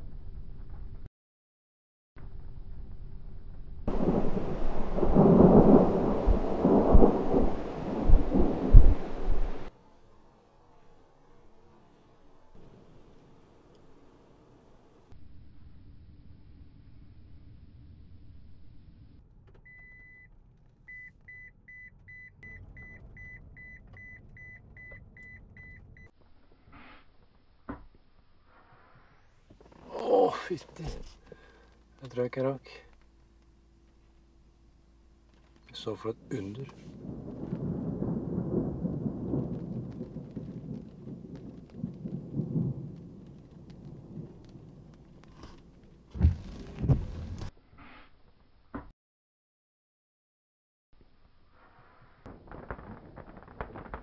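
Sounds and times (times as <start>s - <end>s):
low rumble: 2.2s - 9.7s, 12.3s - 19.4s, 32.9s - 47.5s
raindrop ticks: 36.6s - 46.0s.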